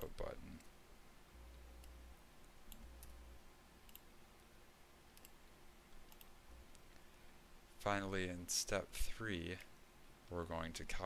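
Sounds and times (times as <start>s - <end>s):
computer mouse clicks: 1.8s - 3.2s, 3.8s - 4.1s, 5.1s - 7.1s.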